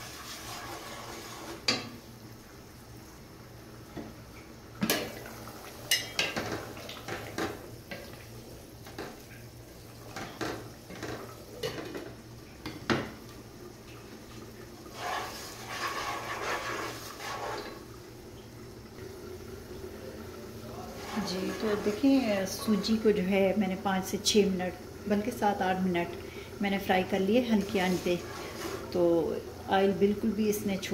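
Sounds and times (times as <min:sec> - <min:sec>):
wooden spatula scraping pot: 0:00.0 - 0:01.8, 0:14.9 - 0:17.8, 0:20.8 - 0:23.2, 0:27.5 - 0:29.1.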